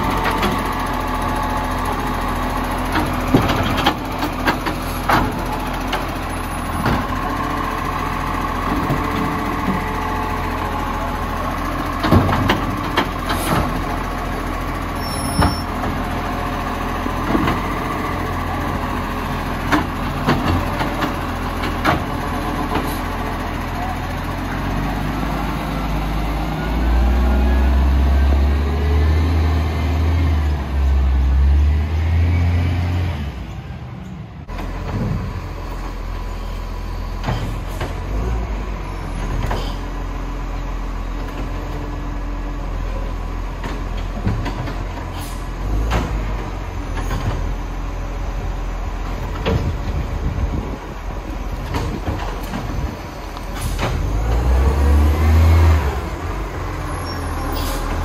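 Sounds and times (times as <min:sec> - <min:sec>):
diesel engine surging with whine: 0:00.0 - 0:58.0
knocks and clunks: 0:02.9 - 0:06.1, 0:12.0 - 0:13.8, 0:19.6 - 0:23.0, 0:34.5 - 0:35.4, 0:43.6 - 0:45.1, 0:45.8 - 0:47.5, 0:49.1 - 0:50.6, 0:51.5 - 0:54.5.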